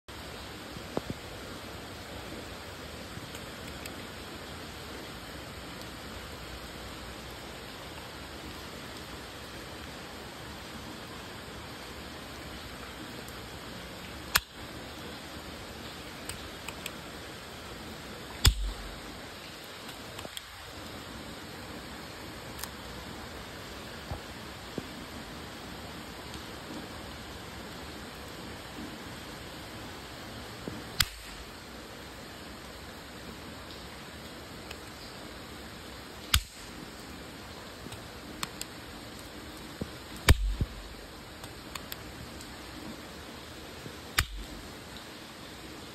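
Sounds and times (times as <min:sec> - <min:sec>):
rain falling: 0:00.1 - 0:45.9
faint ticks: 0:03.1 - 0:04.2, 0:16.0 - 0:17.1, 0:18.4 - 0:21.0, 0:37.8 - 0:43.0
toy gun snaps: 0:18.4 - 0:18.8, 0:31.0 - 0:31.4, 0:36.3 - 0:36.8, 0:44.2 - 0:44.5.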